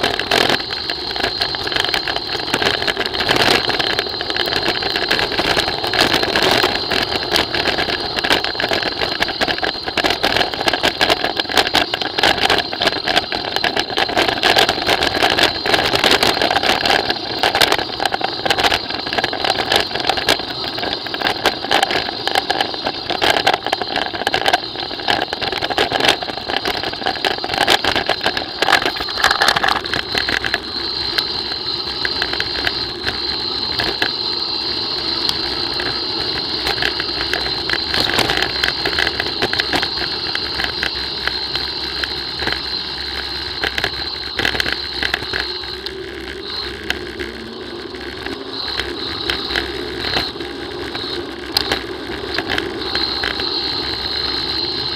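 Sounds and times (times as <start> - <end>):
bicycle tyre noise: 0.0 - 54.9
bike rattling over bumps: 0.0 - 54.9
wind: 0.0 - 54.9.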